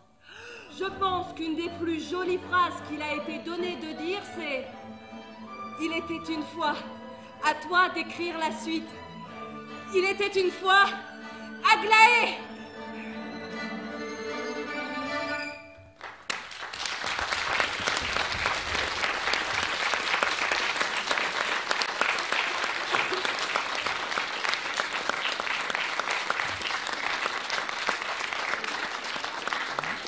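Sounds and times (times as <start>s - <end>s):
music: 0.0s - 16.3s
audience applause: 16.0s - 30.0s.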